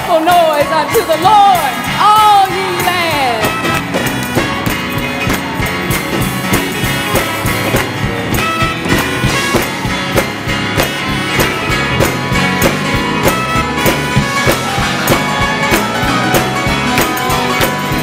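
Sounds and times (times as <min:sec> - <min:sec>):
drum beat: 0:00.0 - 0:18.0
gospel band playing: 0:00.0 - 0:18.0.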